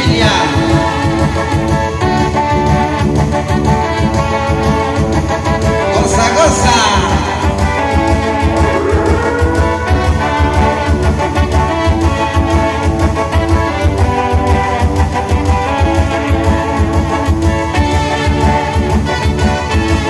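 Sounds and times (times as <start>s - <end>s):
dance music with brass: 1.6s - 20.0s.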